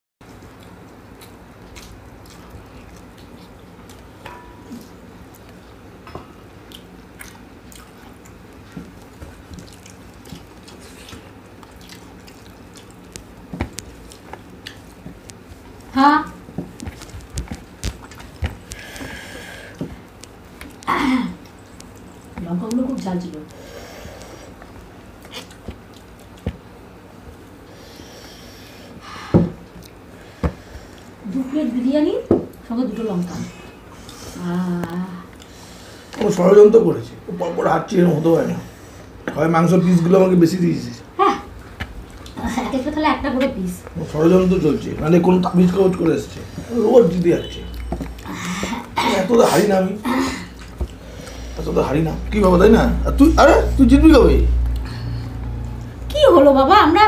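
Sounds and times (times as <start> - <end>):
chewing: 0.2 - 28.4, 29.6 - 31.2, 33.5 - 36.4, 41.4 - 42.6, 43.4 - 49.8, 50.4 - 52.4
steady low hum: 0.2 - 57.0.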